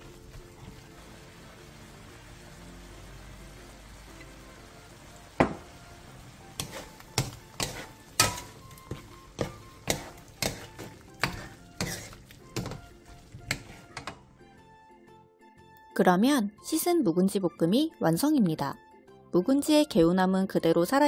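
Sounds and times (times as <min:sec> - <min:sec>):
food sizzling: 0:00.0 - 0:14.6
spatulas knocking on a wok: 0:05.4 - 0:05.7, 0:06.6 - 0:14.2.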